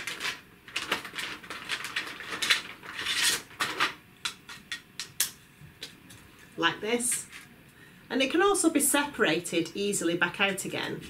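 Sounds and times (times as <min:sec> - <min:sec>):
plastic bag crinkling: 0:00.0 - 0:04.0.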